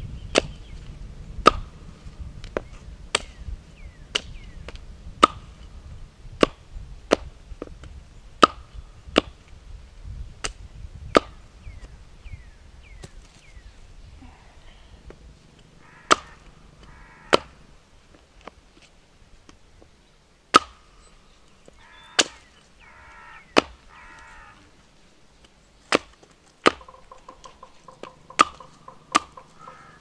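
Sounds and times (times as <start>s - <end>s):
wood being chopped: 0.3s - 0.6s, 1.4s - 1.8s, 2.4s - 3.4s, 4.1s - 5.7s, 6.4s - 9.5s, 10.4s - 11.4s, 16.1s - 17.6s, 20.5s - 20.8s, 22.1s - 22.5s, 23.5s - 24.2s, 25.8s - 29.6s.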